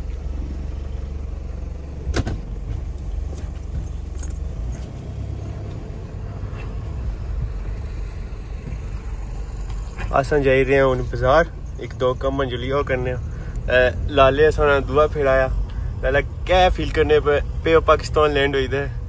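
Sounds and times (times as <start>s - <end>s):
car engine rumble: 0.0s - 19.0s.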